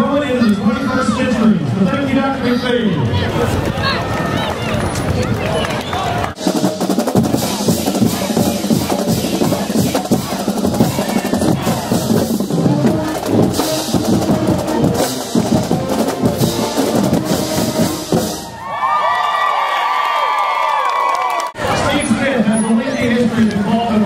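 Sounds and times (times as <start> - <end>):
snare and bass drums cadence: 6.3 - 18.5.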